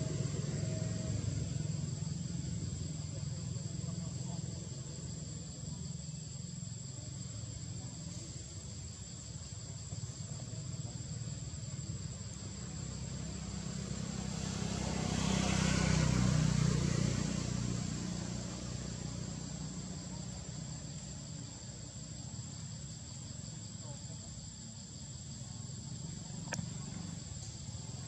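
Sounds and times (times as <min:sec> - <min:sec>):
motor vehicle passing: 0:00.0 - 0:08.2, 0:11.2 - 0:22.0, 0:25.6 - 0:28.0.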